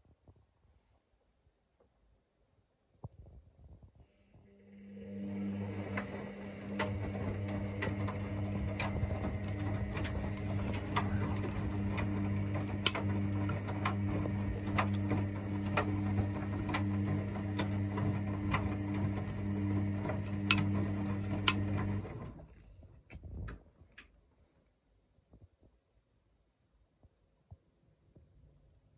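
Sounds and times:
washing machine motor hum: 0:04.3 - 0:23.6.

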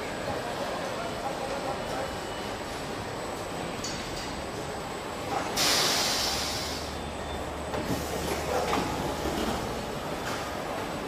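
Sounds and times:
machinery hiss: 0:05.6 - 0:07.0.

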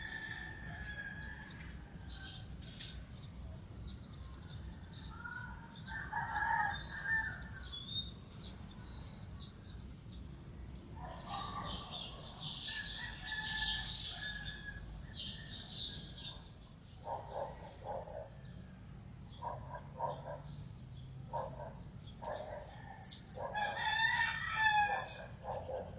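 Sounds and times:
roosters crowing: 0:00.0 - 0:02.5, 0:05.8 - 0:07.7, 0:11.4 - 0:16.4, 0:21.3 - 0:25.9
small birds chirping: 0:01.4 - 0:24.3, 0:24.9 - 0:25.9.

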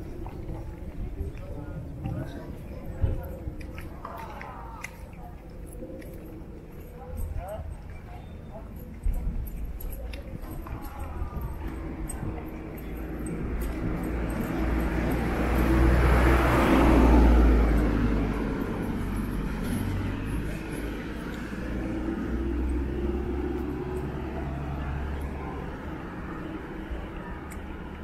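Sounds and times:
quieter vehicle passing: 0:10.1 - 0:28.0.

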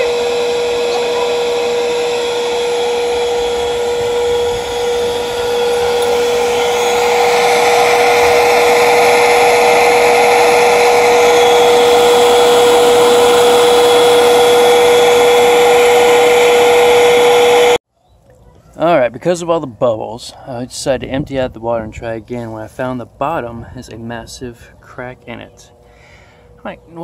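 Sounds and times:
hose sucking water: 0:00.0 - 0:17.8
rushing air: 0:00.0 - 0:17.8
vacuum cleaner motor whine: 0:00.0 - 0:17.8.

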